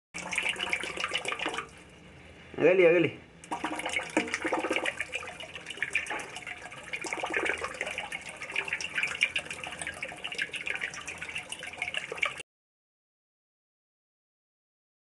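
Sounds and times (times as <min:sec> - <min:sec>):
water splashing and churning: 0:00.2 - 0:01.7, 0:03.5 - 0:12.4.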